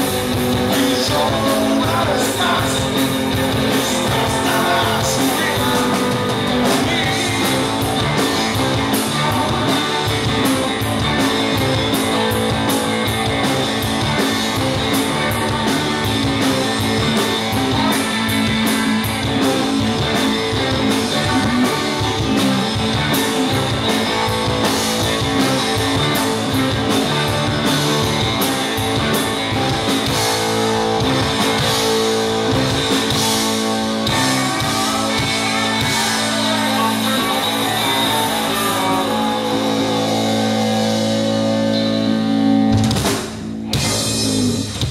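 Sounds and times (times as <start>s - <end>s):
bass guitar: 0.0s - 44.9s
electric guitars: 0.0s - 44.9s
drum and cymbal hits: 42.7s - 44.9s.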